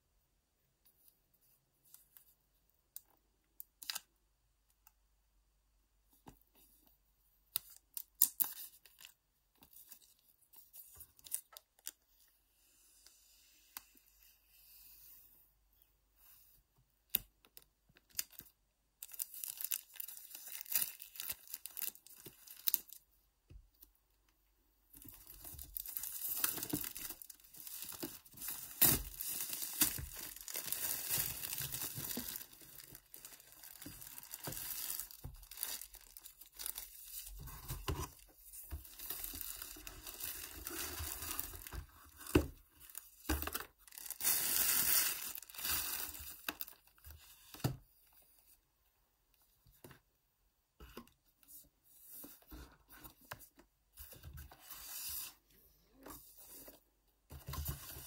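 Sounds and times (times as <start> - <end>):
plastic wrap crinkling and tearing: 18.0 - 23.0, 25.0 - 37.5, 38.6 - 47.0.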